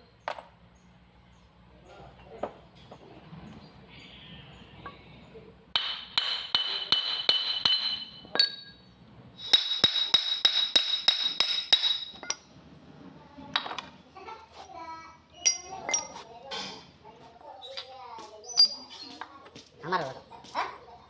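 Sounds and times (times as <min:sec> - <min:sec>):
hammer ringing on metal: 0:05.8 - 0:08.7, 0:09.4 - 0:12.4
metal clink: 0:05.8 - 0:12.5, 0:15.4 - 0:16.2, 0:18.6 - 0:18.9.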